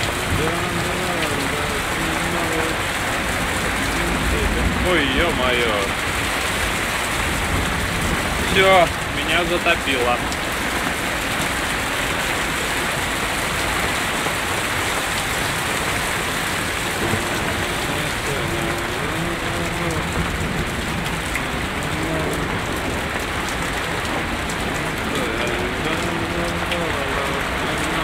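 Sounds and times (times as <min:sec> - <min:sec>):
torrential rain on street: 0:00.0 - 0:28.0.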